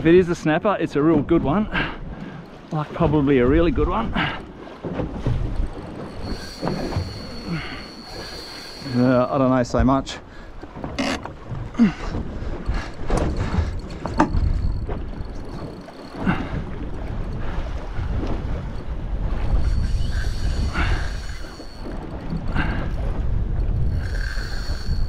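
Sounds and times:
choppy water sloshing: 0.0s - 25.0s
boat knocking: 3.0s - 8.2s, 8.8s - 19.7s
wind noise: 3.4s - 25.0s
fishing reel drag whining: 5.7s - 9.7s, 12.7s - 17.4s, 18.7s - 23.0s, 23.8s - 25.0s.

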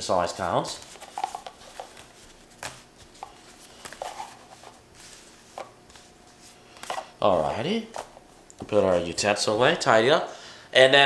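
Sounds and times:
wax paper rustling: 0.4s - 7.0s.

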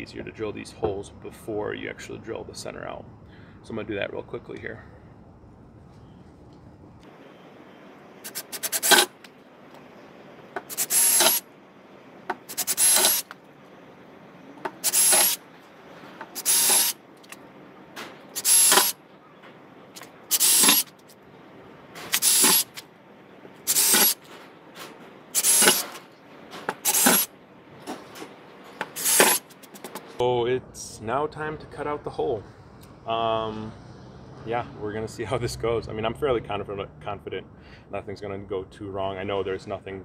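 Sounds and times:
cordless drill whining: 10.7s - 11.4s, 12.5s - 13.3s, 14.8s - 15.4s, 16.4s - 17.0s, 18.4s - 19.0s, 20.3s - 20.8s, 22.1s - 22.7s, 23.7s - 24.2s, 25.4s - 25.9s, 29.0s - 29.4s.

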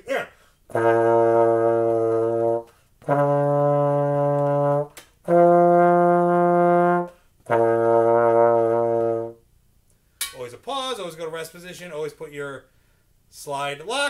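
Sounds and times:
trombone long held notes: 0.7s - 9.4s.

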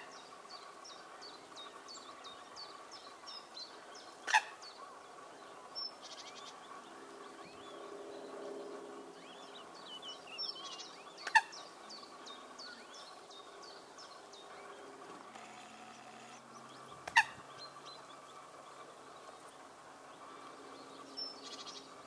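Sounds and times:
coots sharp calls: 4.2s - 5.0s, 15.3s - 17.8s.

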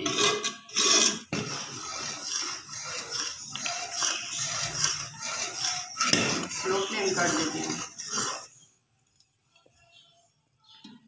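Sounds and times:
ladle scraping and sloshing in pot: 0.0s - 8.8s.

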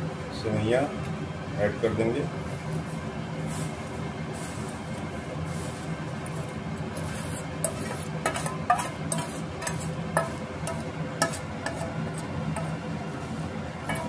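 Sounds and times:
steady low hum: 0.0s - 14.0s
spoon scraping steel bowl: 5.5s - 14.0s.

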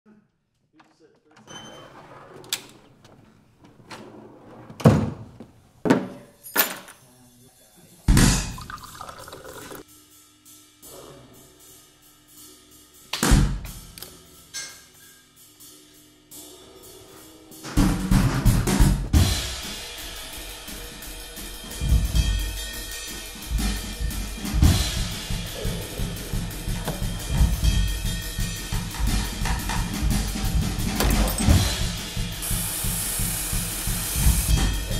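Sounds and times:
background music with drums: 9.8s - 34.9s
drum kit beat with cymbals: 9.8s - 34.9s.

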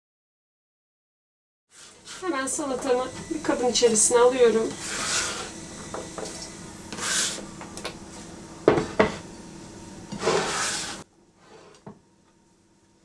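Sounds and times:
plastic scraper on cutting board: 10.1s - 11.9s.

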